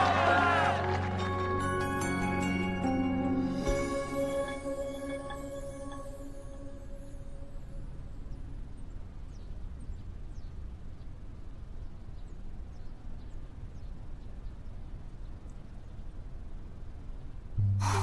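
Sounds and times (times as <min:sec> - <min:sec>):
room ambience rumble: 0:17.6 - 0:18.0.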